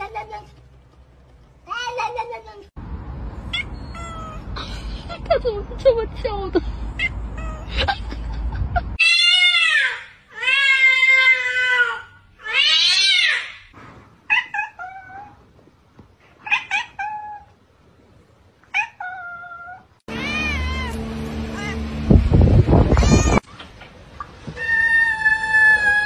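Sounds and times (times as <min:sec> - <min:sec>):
cat meowing: 0:03.5 - 0:04.4, 0:18.8 - 0:21.9, 0:22.9 - 0:23.4.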